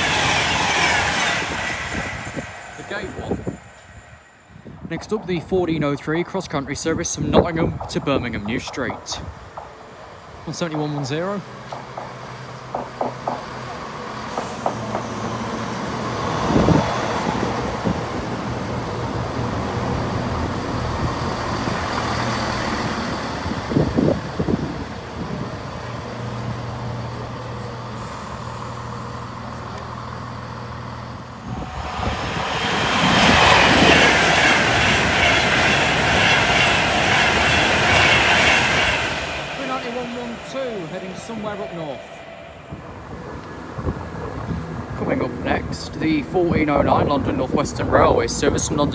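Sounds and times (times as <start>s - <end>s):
train passing at speed: 0.0s - 5.9s, 6.6s - 48.9s
diesel train engines humming: 9.2s - 45.4s.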